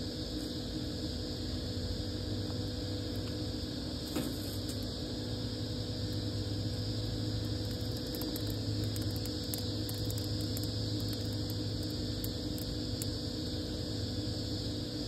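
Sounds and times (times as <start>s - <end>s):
machine-like hum: 0.0s - 15.0s
twig fire crackling: 7.1s - 13.2s.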